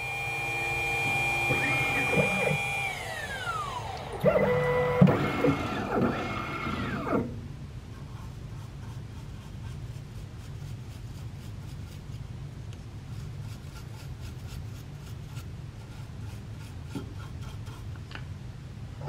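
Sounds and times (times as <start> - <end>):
steady low hum: 0.0 - 19.0
paintbrush brushing metal shavings: 8.0 - 12.3, 13.0 - 17.9.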